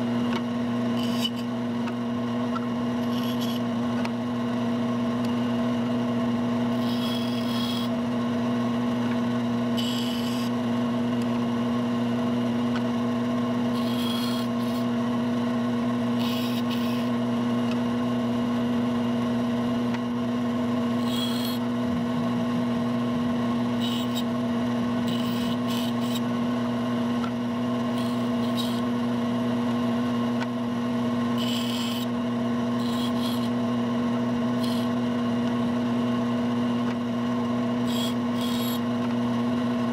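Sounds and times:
bandsaw humming: 0.0s - 1.7s, 2.5s - 4.1s, 5.5s - 8.2s, 9.5s - 11.4s, 12.2s - 35.8s, 37.4s - 39.9s
bandsaw blade rasping cuts: 0.9s - 1.5s, 3.0s - 3.7s, 6.7s - 8.0s, 9.8s - 10.6s, 13.7s - 15.0s, 16.1s - 17.2s, 20.9s - 22.1s, 23.5s - 24.4s, 25.0s - 26.4s, 27.2s - 28.9s, 31.3s - 33.6s, 34.5s - 35.0s, 37.8s - 38.9s.

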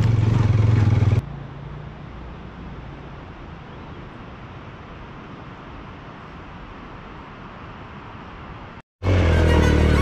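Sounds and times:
motorcycle engine running: 0.0s - 1.2s.

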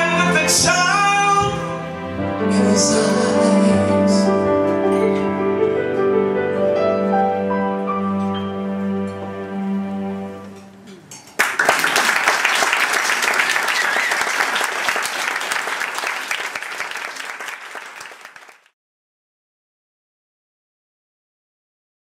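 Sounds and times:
electric keyboard chord: 1.4s - 10.8s
audience applauding: 11.4s - 18.8s.

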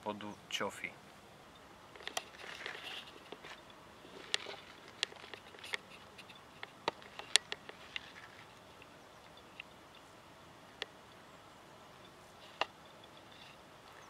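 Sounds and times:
faint steady background noise: 0.0s - 14.0s
light clicks and ticks: 1.5s - 10.0s.

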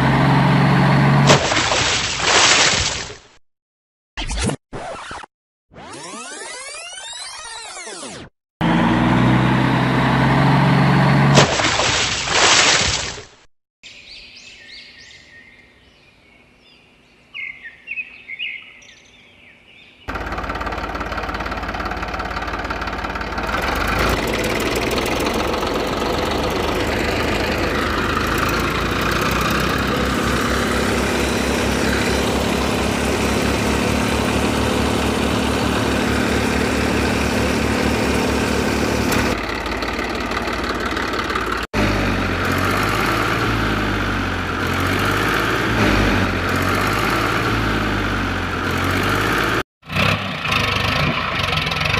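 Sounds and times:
tractor engine running: 0.0s - 1.9s, 8.6s - 11.9s, 20.1s - 51.9s.

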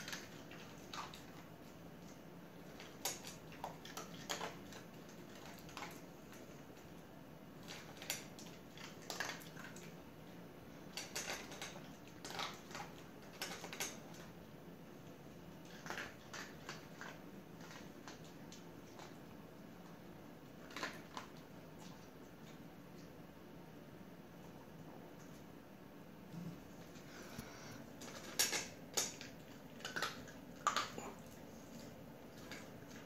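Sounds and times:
dog crunching kibble in metal bowl: 0.0s - 7.0s, 7.6s - 10.0s, 10.8s - 14.4s, 15.6s - 19.2s, 20.5s - 22.1s, 26.8s - 33.0s.

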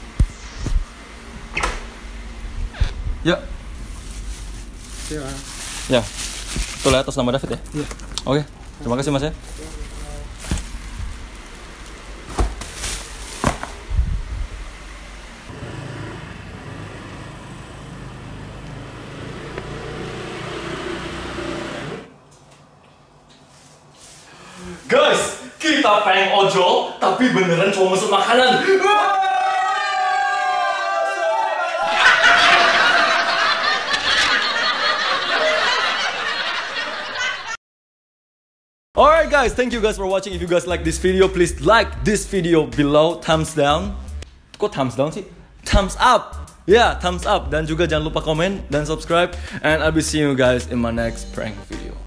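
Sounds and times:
motorcycle engine running: 15.5s - 21.9s
people cheering and shouting: 28.5s - 34.0s
people laughing: 31.2s - 37.6s.

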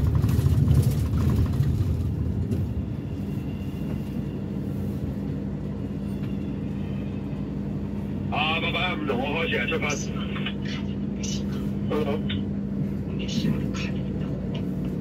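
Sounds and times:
engine idling hum: 0.0s - 15.0s
road and engine rumble: 0.0s - 15.0s.

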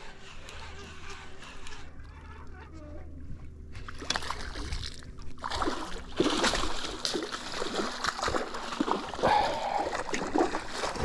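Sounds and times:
fish thrashing and splashing: 3.8s - 11.0s.

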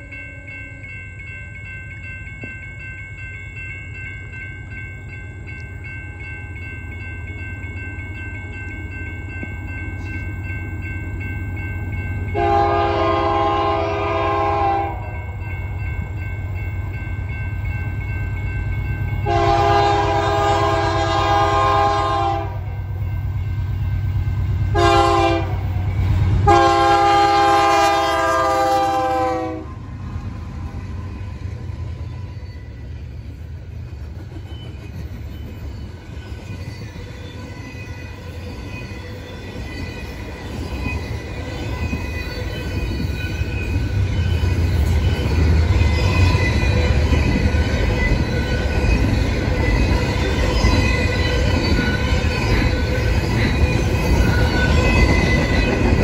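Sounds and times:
diesel locomotives rumbling: 0.0s - 56.0s
train air horn blasts: 12.4s - 15.1s, 19.2s - 22.7s, 24.7s - 25.6s, 26.4s - 29.8s.

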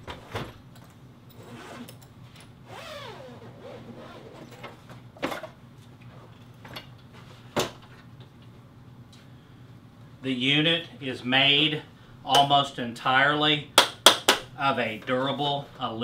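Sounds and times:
zipper opening: 1.3s - 2.0s, 2.7s - 4.8s.

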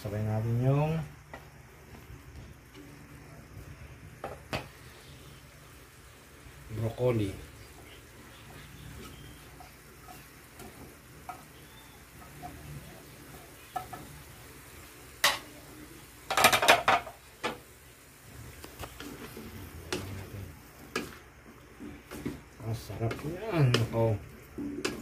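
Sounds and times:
sizzling in a wok: 0.0s - 25.0s
metal clattering against wok: 16.3s - 17.6s.

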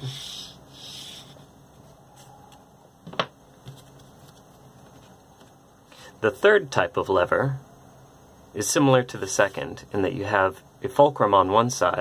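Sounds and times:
paper strip on cardboard handling: 0.0s - 1.4s.

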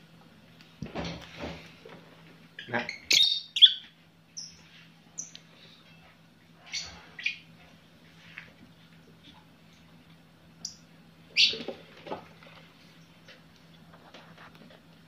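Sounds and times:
faint steady hum: 0.0s - 15.0s
lovebirds chirping: 2.6s - 7.6s.

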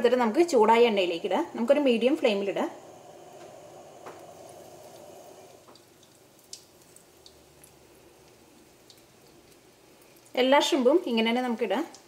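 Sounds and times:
shrimp sizzling in oil: 0.4s - 10.4s
small oil pops: 5.6s - 10.4s.

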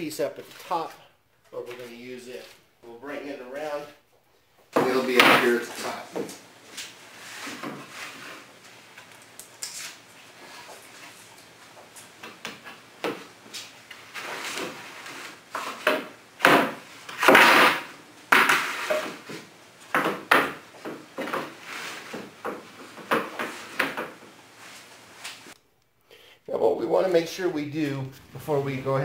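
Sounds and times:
wooden boards knocking and scraping: 12.2s - 24.4s.

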